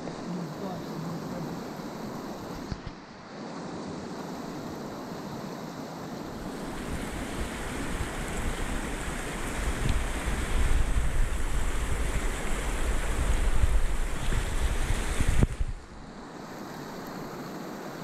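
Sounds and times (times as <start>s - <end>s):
creek water rushing: 0.0s - 18.0s
wind buffeting microphone: 6.4s - 16.0s.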